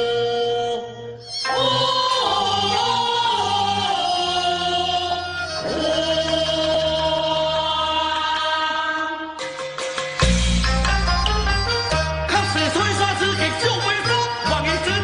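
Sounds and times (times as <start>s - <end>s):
opera instrumental accompaniment: 0.0s - 15.0s
solo voice singing opera: 1.4s - 9.4s.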